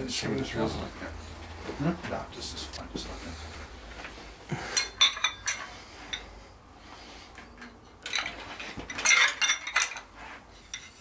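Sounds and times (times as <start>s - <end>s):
metal tools clinking and rattling: 4.7s - 6.4s, 7.3s - 11.0s.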